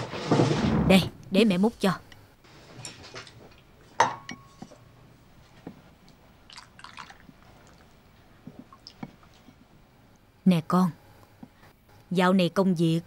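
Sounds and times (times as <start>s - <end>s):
ladle clinking on porcelain bowls: 4.0s - 4.7s.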